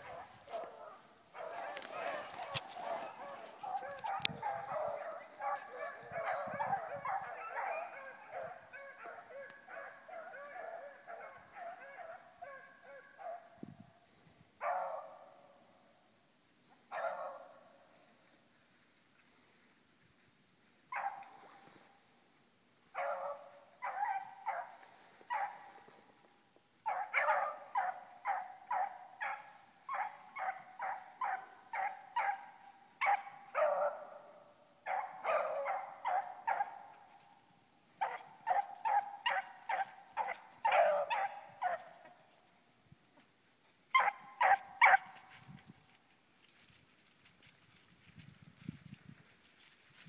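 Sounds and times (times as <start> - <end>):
dogs barking: 0.0 - 13.6, 14.6 - 15.5, 16.8 - 17.7, 20.9 - 21.4, 22.9 - 26.1, 26.8 - 37.4, 38.0 - 42.3, 43.9 - 45.3.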